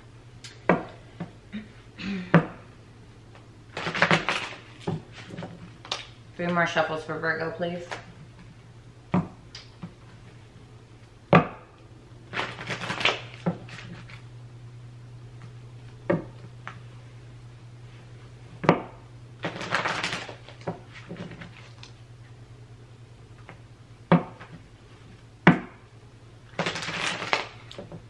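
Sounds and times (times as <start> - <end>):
cards rustling while shuffled: 3.8 - 6.0, 12.3 - 14.2, 19.4 - 22.0, 26.6 - 27.8.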